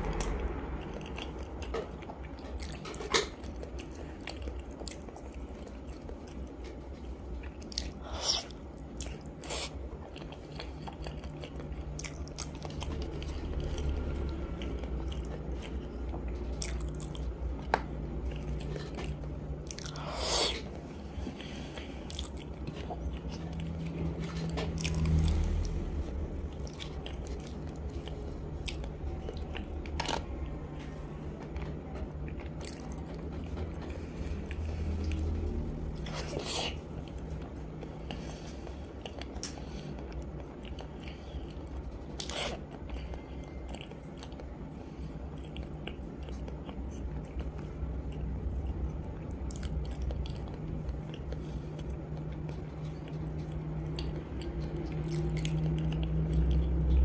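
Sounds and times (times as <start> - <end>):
chewing and biting egg: 0.0 - 57.0
low steady hum: 0.0 - 57.0.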